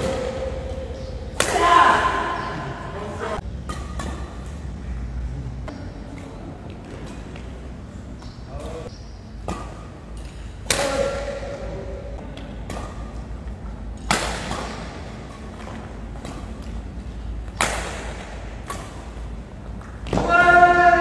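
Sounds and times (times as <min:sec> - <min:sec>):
badminton racket hitting shuttlecock: 0:00.0 - 0:04.7, 0:09.4 - 0:11.7, 0:12.4 - 0:21.0.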